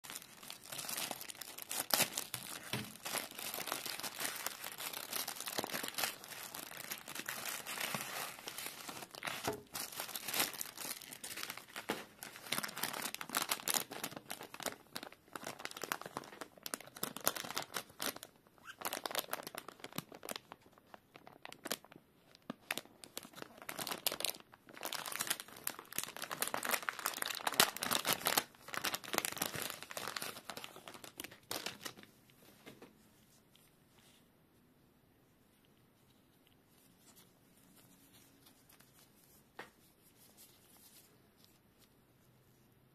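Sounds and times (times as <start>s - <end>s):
plastic bag tearing: 0.0s - 20.6s, 22.7s - 32.0s
plastic packaging crinkling: 0.0s - 32.8s.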